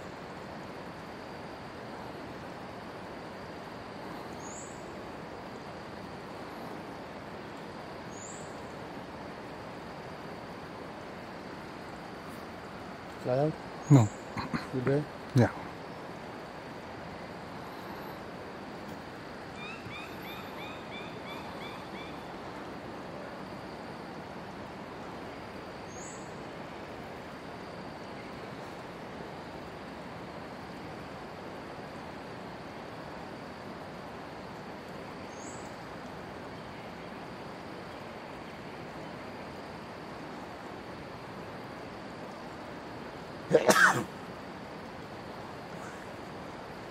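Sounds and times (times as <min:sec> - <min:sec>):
faint high drone: 0:00.0 - 0:46.9
steady hiss: 0:00.0 - 0:46.9
birds calling: 0:19.5 - 0:22.3, 0:45.7 - 0:46.2.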